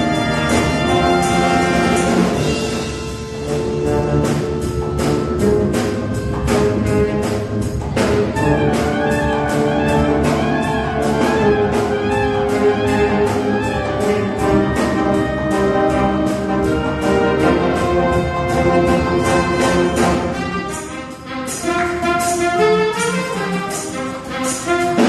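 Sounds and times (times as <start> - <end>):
percussion steady beat: 0.0 - 25.0
wind band playing: 0.0 - 25.0.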